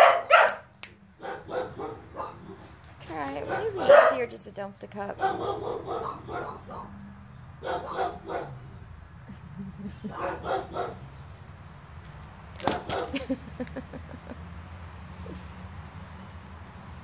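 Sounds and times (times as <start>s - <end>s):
person's voice: 3.0s - 5.3s.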